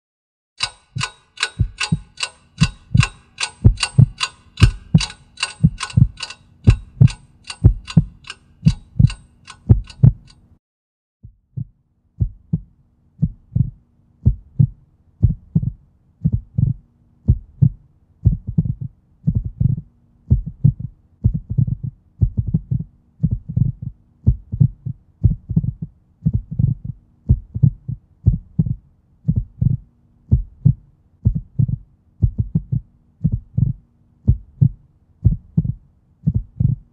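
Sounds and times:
heartbeat: 0.6 - 10.3, 11.2 - 36.9
clock ticking rapidly: 0.6 - 10.6
faint low hum: 11.3 - 36.9.

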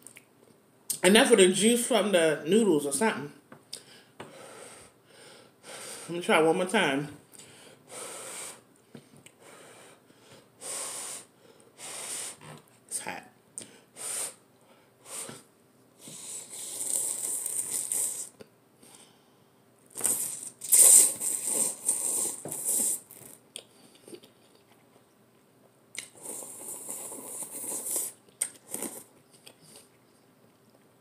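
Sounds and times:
person slurping noodles: 16.0 - 18.4, 20.0 - 23.4, 26.0 - 29.9.

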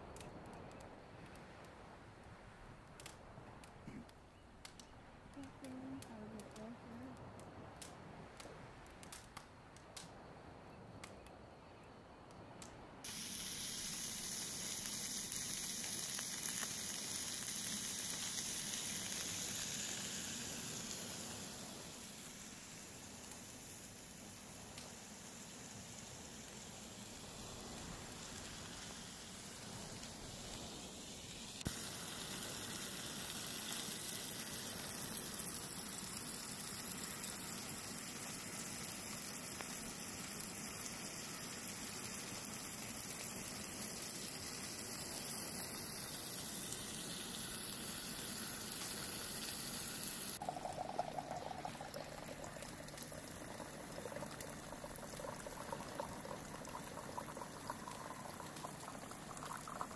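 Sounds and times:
steak sizzling in a frying pan: 13.1 - 29.6, 30.6 - 38.6, 39.2 - 53.8
water pouring into a metal mug: 50.3 - 59.9.

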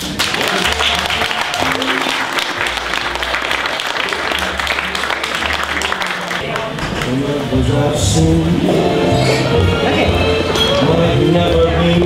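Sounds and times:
crowd applauding: 0.0 - 7.4
music with low bass notes: 7.1 - 12.0.

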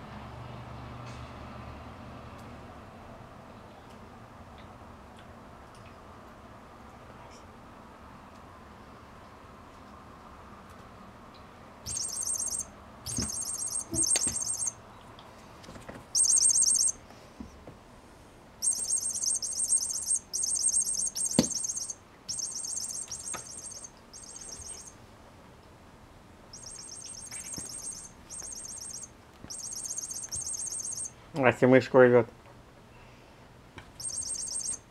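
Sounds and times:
electronic chirping toy: 11.9 - 14.8, 16.2 - 17.0, 18.6 - 25.0, 26.5 - 31.2, 34.0 - 34.9.

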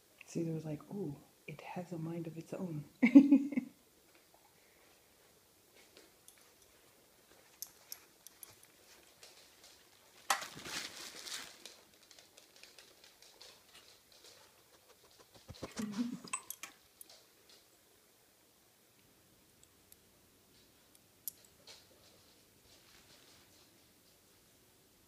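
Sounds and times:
dog paws tapping on carpet: 5.7 - 16.1
dog scuffling rustle: 8.8 - 12.3.

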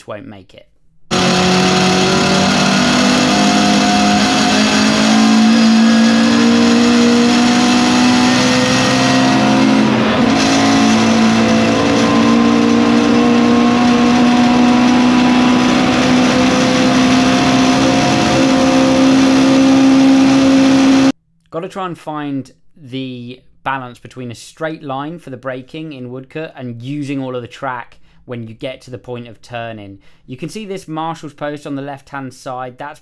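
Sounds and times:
race car engine accelerating: 1.1 - 21.1.

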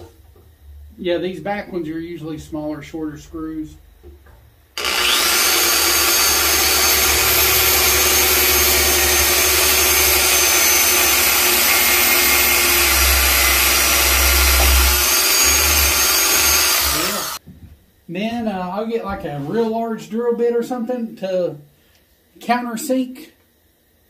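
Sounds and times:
electric drill boring: 4.8 - 17.4.

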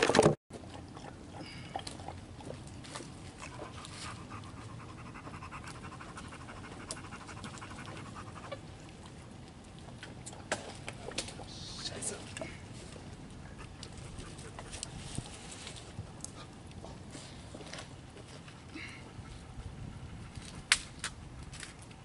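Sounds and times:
dog panting: 3.3 - 9.2, 16.2 - 20.7.

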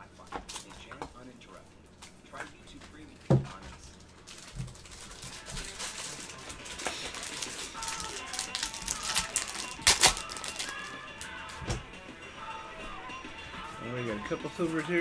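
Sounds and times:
foil wrapper crinkling: 4.2 - 10.9.

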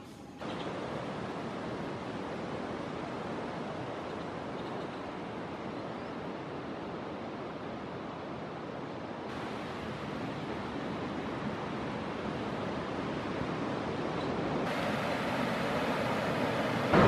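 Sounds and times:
ocean surf breaking: 9.3 - 17.0.

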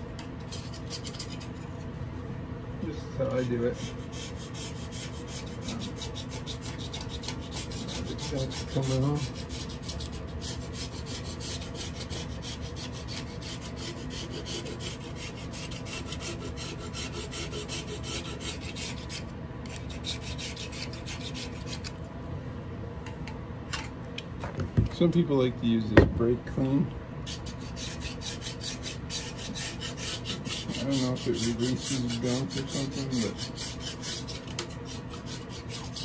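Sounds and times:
razor blade scraping metal: 0.4 - 1.7, 3.4 - 22.0, 27.2 - 36.0.

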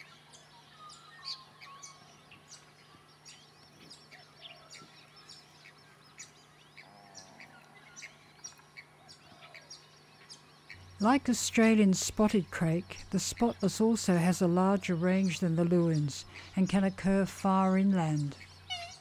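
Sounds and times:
small birds chirping: 0.0 - 19.0
steady low hum: 0.0 - 19.0
low bird call: 18.2 - 19.0.

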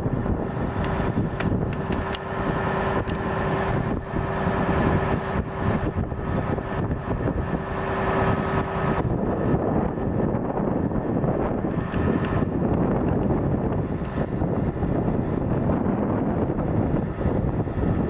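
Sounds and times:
steady mechanical whine: 0.0 - 18.0
truck engine mechanical rumble: 0.0 - 18.0.

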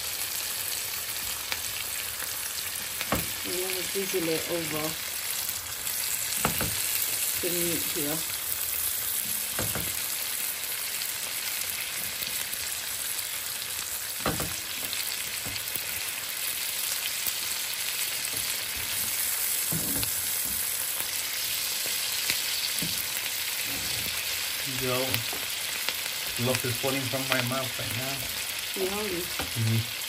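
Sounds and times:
steaks sizzling in butter: 0.0 - 30.0
spoon knocking against a pan: 6.4 - 6.8, 9.5 - 10.0, 14.2 - 14.6.

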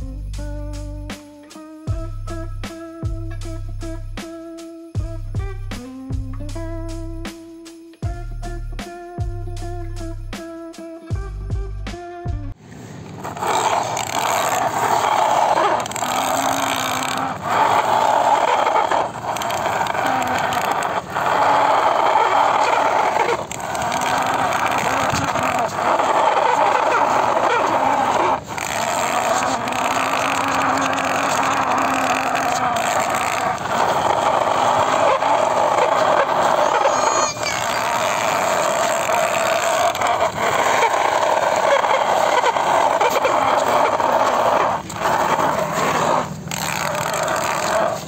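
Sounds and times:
toy vehicles scraping through sand: 12.7 - 48.0.

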